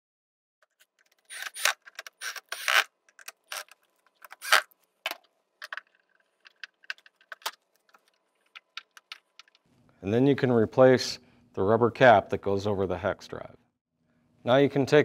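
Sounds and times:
cordless screwdriver: 1.3 - 2.9, 3.5 - 4.7
plastic cover clicks and rattles: 5.1 - 9.6.

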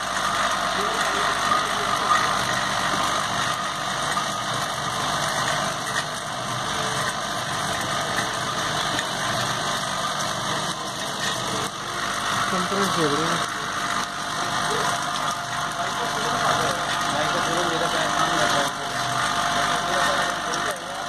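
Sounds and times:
low hum of drive: 0.0 - 21.0
plastic caps rattling in vibrating bowl: 0.0 - 21.0.

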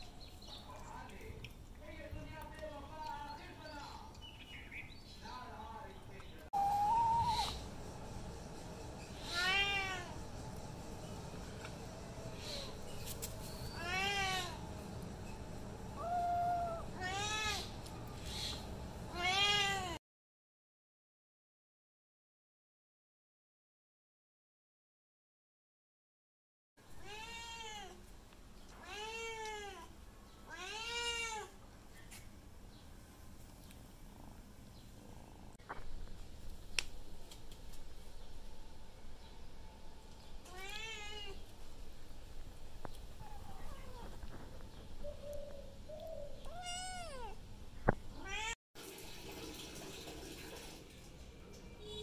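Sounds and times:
faint background noise: 0.0 - 20.0, 26.8 - 52.0
cat meowing: 9.2 - 10.1, 16.0 - 17.7, 19.1 - 20.0, 30.5 - 31.5, 46.4 - 47.4, 48.2 - 48.6
kitten meowing: 46.4 - 47.4.

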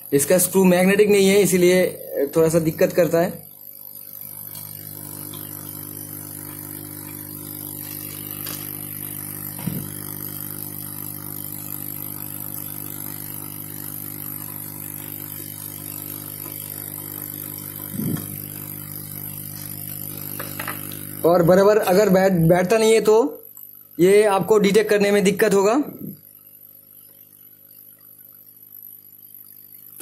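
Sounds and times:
electric blower humming: 0.0 - 23.2.

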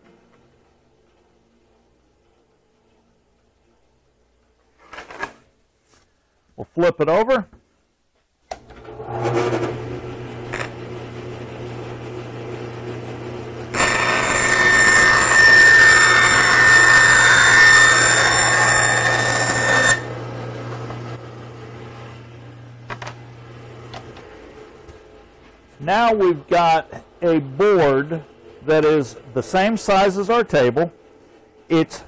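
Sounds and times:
bandsaw humming: 8.8 - 22.7
saw blade rasping through board: 13.7 - 20.1.

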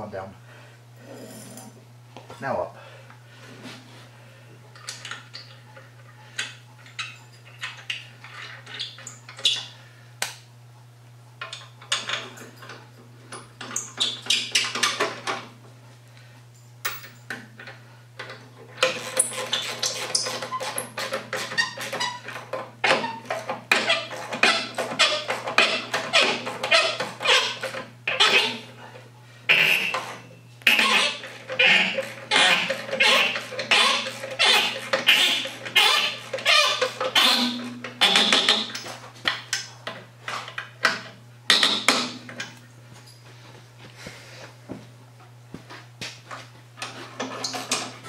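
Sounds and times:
steady low hum: 0.0 - 13.7.

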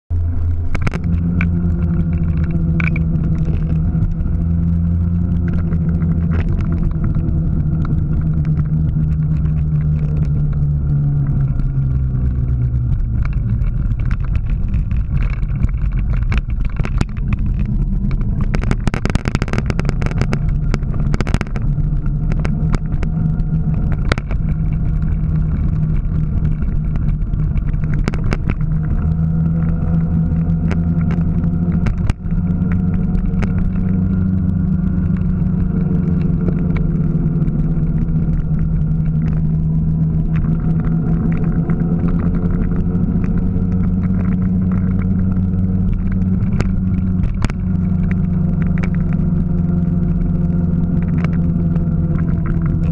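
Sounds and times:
vehicle engine humming: 0.0 - 52.9
short crackles and rushes of noise: 0.1 - 52.9.

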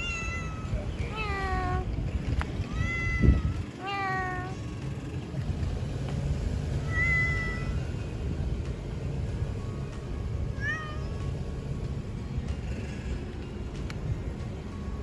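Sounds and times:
cat meowing: 0.0 - 1.8, 2.6 - 4.6, 6.8 - 7.8, 10.5 - 11.3.

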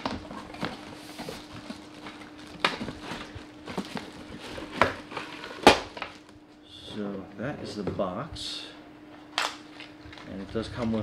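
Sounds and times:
rustling plastic and cardboard: 0.0 - 6.3.

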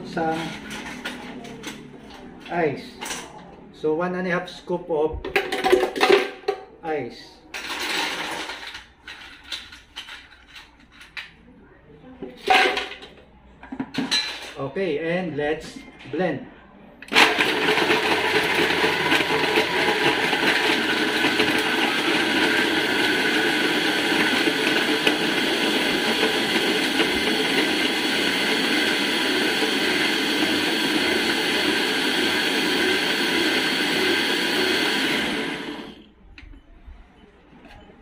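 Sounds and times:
blender blending ice: 17.1 - 36.1.

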